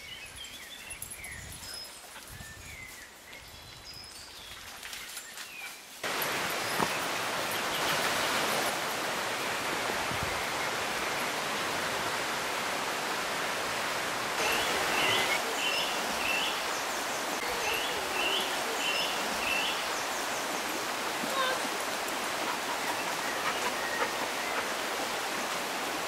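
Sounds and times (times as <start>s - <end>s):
river rushing: 6.0s - 26.0s.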